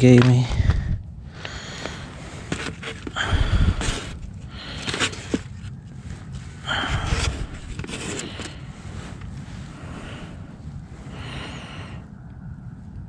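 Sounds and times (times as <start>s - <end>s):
rustling against a microphone: 0.0s - 11.2s
breathy bursts: 0.5s - 5.6s, 6.5s - 12.2s.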